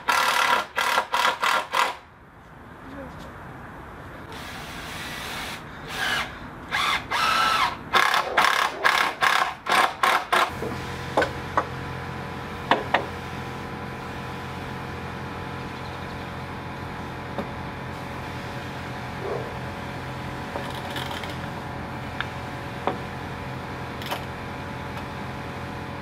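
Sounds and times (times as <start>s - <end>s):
power drill driving screw into wood: 0.0s - 2.0s, 5.1s - 10.5s.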